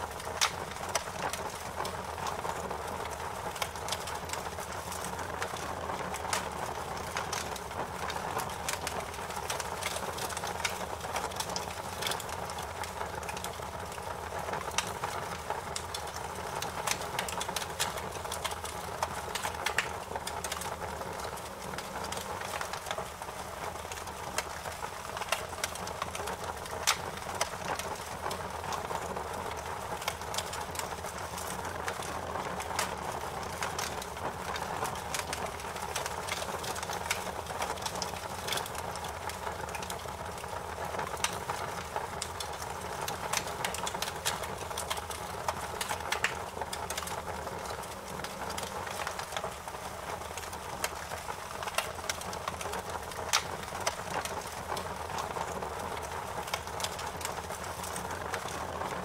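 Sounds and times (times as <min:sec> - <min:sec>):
wood fire crackling and popping: 0:00.0 - 0:59.0.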